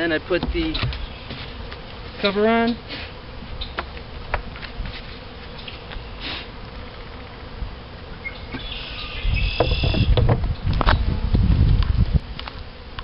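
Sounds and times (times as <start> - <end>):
bees buzzing: 0.0 - 13.0
hive cover knocking and rumbling: 0.3 - 2.3, 9.5 - 11.1.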